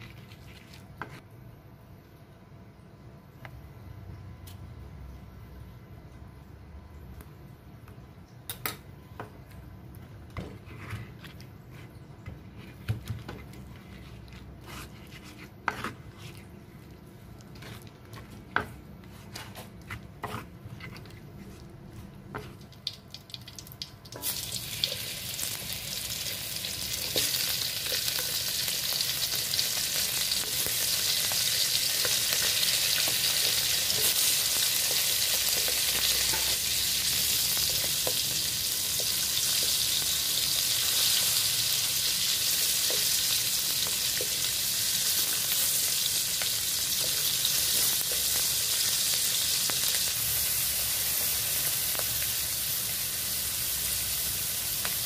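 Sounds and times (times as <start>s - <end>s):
fish frying in oil: 22.6s - 55.0s.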